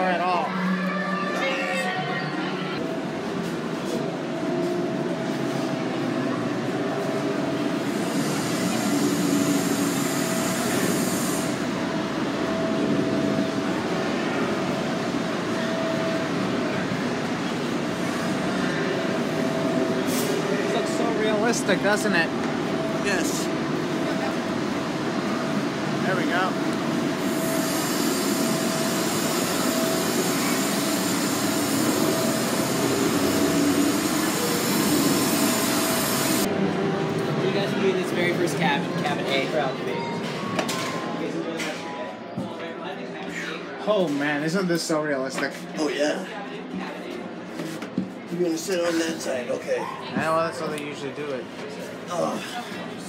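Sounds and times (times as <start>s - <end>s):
steam locomotive hissing: 7.7s - 11.8s, 27.2s - 36.5s.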